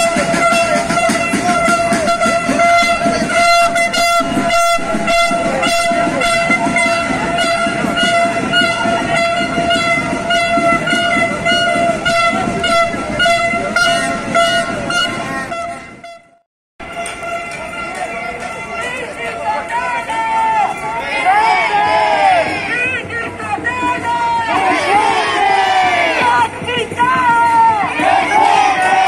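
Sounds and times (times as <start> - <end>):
regular beats: 0.0 - 19.0
horn long steady note: 0.0 - 26.7, 27.9 - 29.0
crowd noise: 0.0 - 29.0.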